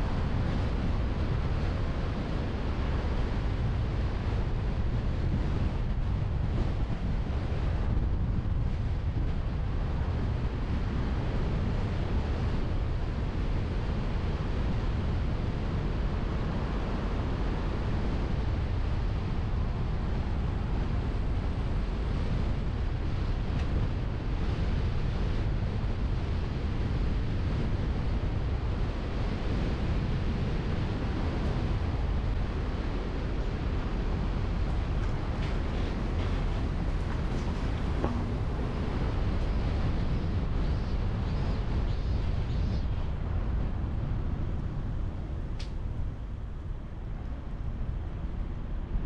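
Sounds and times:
wind buffeting microphone: 0:00.0 - 0:49.0
car driving rumble: 0:34.1 - 0:40.6.

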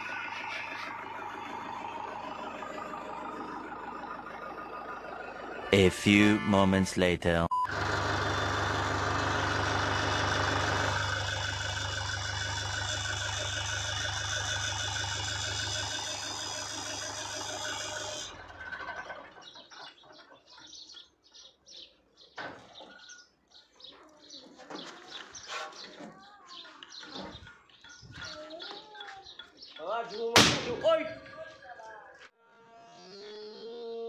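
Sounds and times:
tractor engine running: 0:00.0 - 0:19.8.

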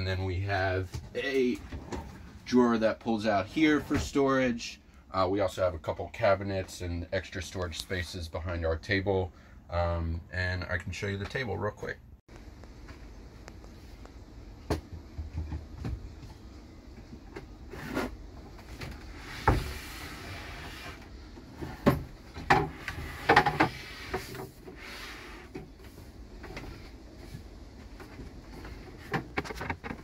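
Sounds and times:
drawer sliding rub: 0:17.6 - 0:22.0, 0:22.7 - 0:27.5
drawer knocks and clunks: 0:21.5 - 0:24.6.

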